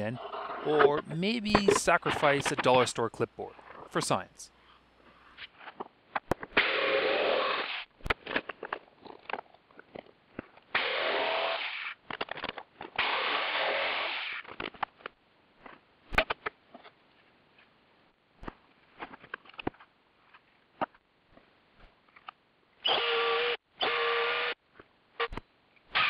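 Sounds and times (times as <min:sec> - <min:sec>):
jigsaw cutting hardboard: 0:06.6 - 0:08.5, 0:10.8 - 0:12.0, 0:22.8 - 0:24.6.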